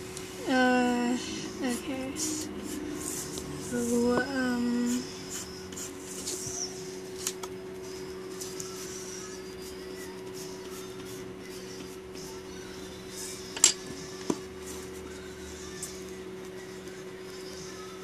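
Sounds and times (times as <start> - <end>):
steady low hum: 0.0 - 18.0
pencil sketching on paper: 0.5 - 7.0, 7.8 - 12.4.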